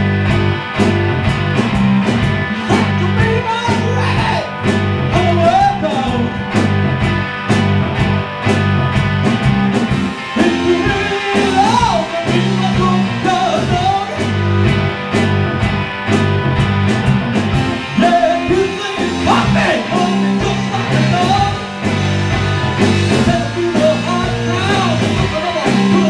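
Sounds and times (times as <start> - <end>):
bass guitar: 0.0 - 26.0
drum kit: 0.0 - 26.0
electric guitar: 0.0 - 26.0
man singing: 2.6 - 4.5, 5.1 - 6.4, 10.2 - 14.3, 17.9 - 21.6, 23.1 - 26.0.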